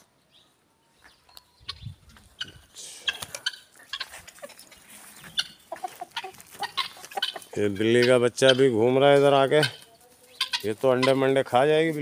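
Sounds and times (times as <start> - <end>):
poultry clucking and squawking: 1.0 - 12.0.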